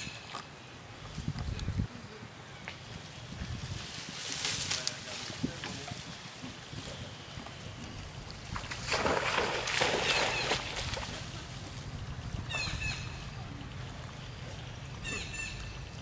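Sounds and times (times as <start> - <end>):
monkeys splashing in water: 7.4 - 15.9
high chirping calls: 12.4 - 16.0.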